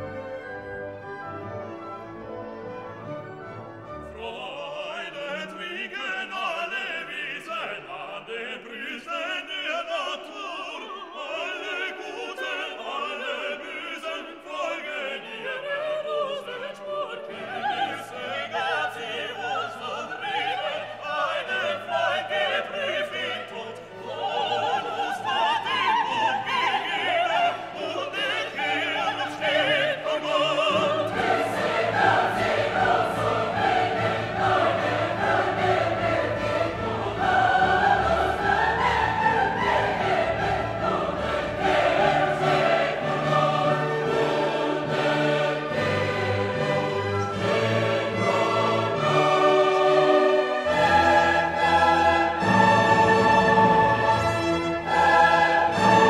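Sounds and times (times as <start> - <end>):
classical singing with orchestra: 0.0 - 56.0.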